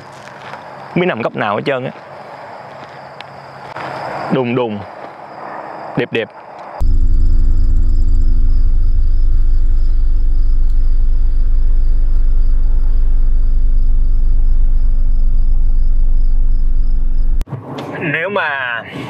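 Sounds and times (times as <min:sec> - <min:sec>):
faint insect chirring: 0:00.0 - 0:17.4
low ambient drone: 0:06.8 - 0:17.4.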